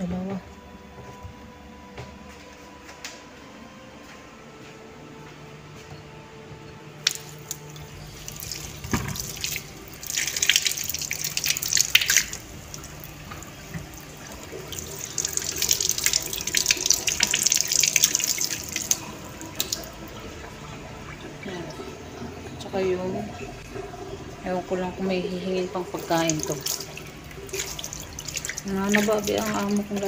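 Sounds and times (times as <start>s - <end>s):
tap running into sink: 7.0s - 20.0s
water splashing on fruit: 7.0s - 20.0s, 25.8s - 30.0s.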